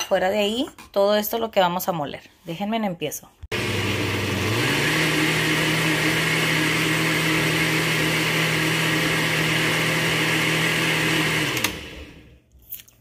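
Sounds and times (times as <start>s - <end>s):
blender motor running: 3.5s - 12.4s.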